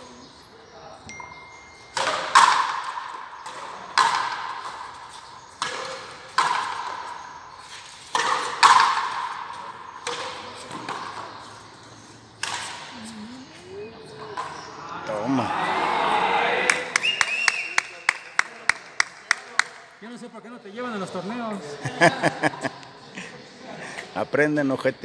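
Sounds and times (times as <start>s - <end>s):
rubber ball hitting racket and wall: 2.0s - 4.9s, 8.1s - 11.4s.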